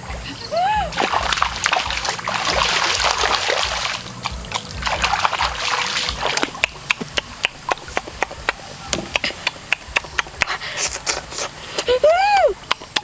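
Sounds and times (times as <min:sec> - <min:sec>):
water splashing and trickling: 0:00.6 - 0:09.7.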